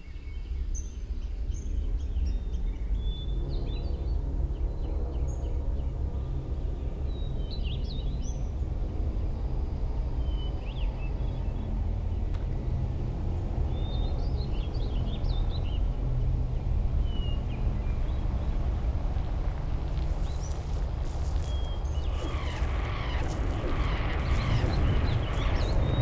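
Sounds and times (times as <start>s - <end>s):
steady low rumble: 11.2s - 26.0s
small birds chirping: 17.0s - 26.0s.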